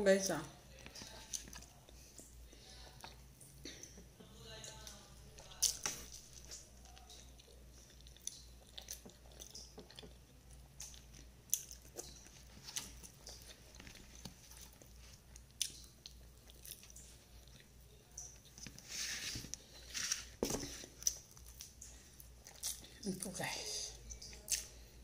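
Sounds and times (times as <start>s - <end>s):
person chewing food: 0.7s - 4.1s, 4.8s - 23.0s.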